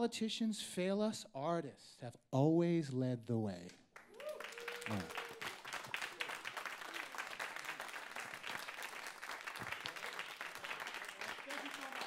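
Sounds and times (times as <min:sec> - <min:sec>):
crowd applauding: 0:04.0 - 0:12.0.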